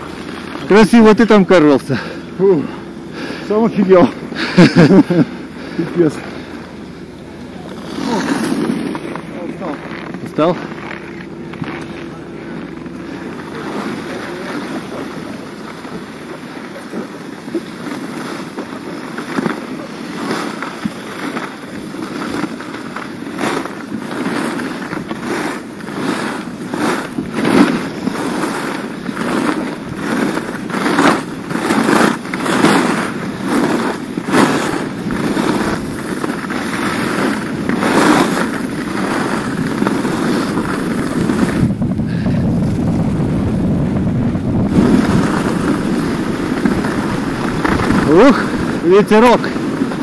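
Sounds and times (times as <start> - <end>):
skis scraping over snow: 0.0 - 50.0
wind rushing over microphone: 25.8 - 50.0.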